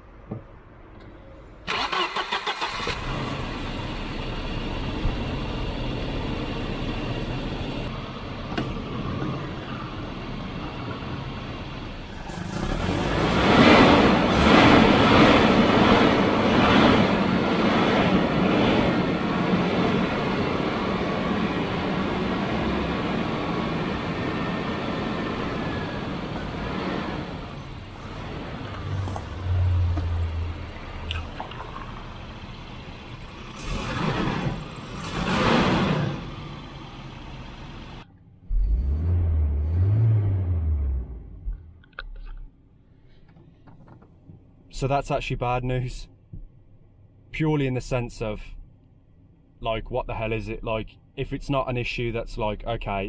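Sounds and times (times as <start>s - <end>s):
car engine revving rough: 12.1s - 41.6s.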